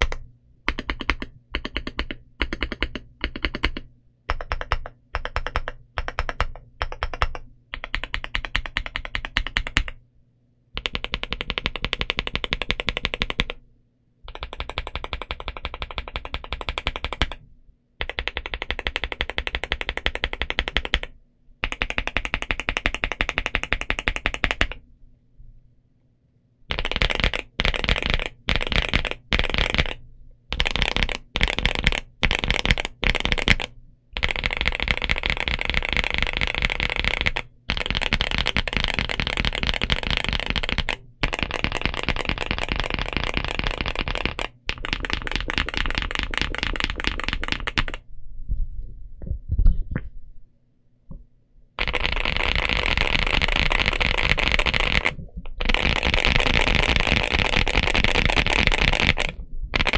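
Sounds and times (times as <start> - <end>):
mechanical keyboard typing: 0.0 - 10.0, 10.8 - 13.6, 14.3 - 17.4, 18.0 - 24.8, 26.7 - 48.0, 51.8 - 59.9.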